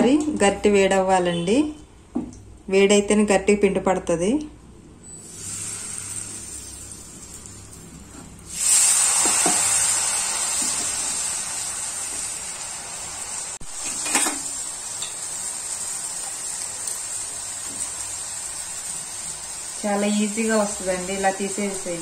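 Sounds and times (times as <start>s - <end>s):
hot oil sizzling: 5.1s - 22.0s.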